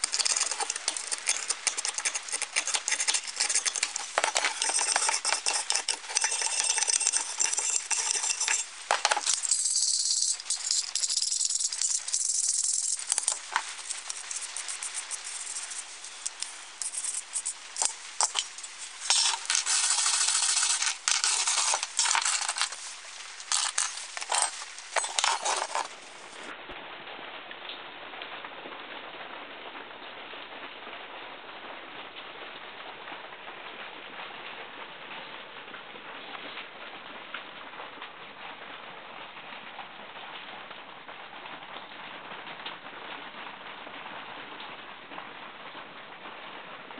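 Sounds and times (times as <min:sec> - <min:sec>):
metal parts clinking: 0:00.0 - 0:26.5
metal scraping with hand tool: 0:00.0 - 0:26.5.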